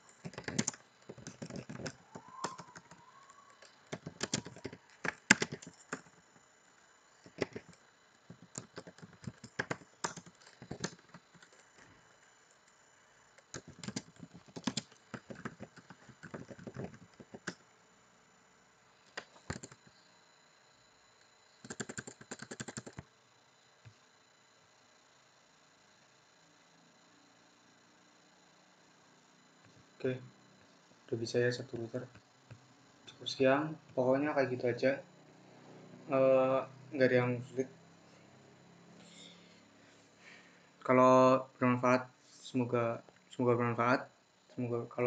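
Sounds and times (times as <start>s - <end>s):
computer keyboard typing: 0.1s - 6.2s, 7.2s - 11.9s, 13.4s - 17.6s, 19.1s - 19.9s, 21.6s - 23.0s.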